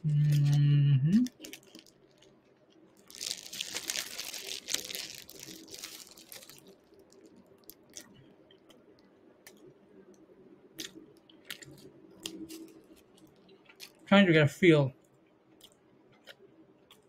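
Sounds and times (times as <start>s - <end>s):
person chewing crunchy food: 1.3s - 9.7s, 10.7s - 14.0s, 15.5s - 17.0s.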